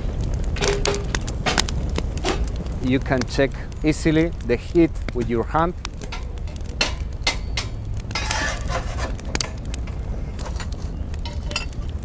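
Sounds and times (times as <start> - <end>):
low steady rumble: 0.0 - 12.0
metal shovel scraping embers: 0.4 - 2.6, 5.9 - 12.0.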